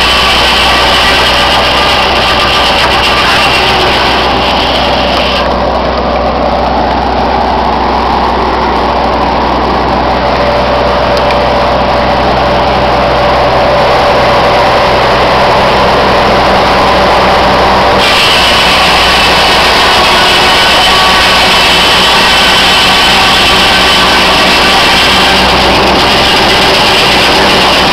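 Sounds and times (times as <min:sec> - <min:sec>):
sawmill machinery running: 0:00.0 - 0:27.9.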